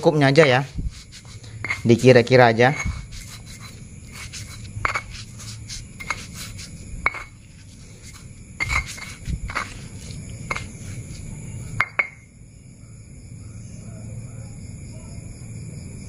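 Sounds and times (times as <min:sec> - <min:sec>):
stone clinking on stone: 0:00.4 - 0:02.1, 0:02.7 - 0:12.2
stone pestle grinding in mortar: 0:00.4 - 0:12.2.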